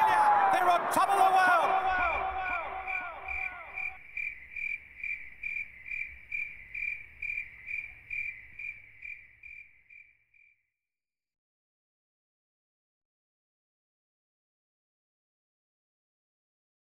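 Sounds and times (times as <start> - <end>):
crickets chirping: 1.7 - 10.8.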